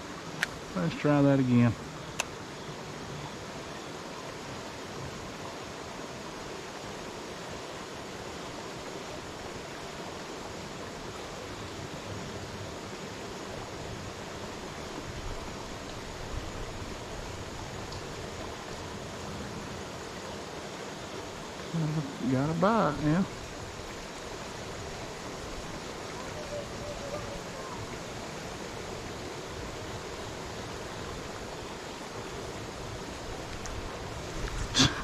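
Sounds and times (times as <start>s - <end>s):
creek water flowing: 0.0s - 35.0s.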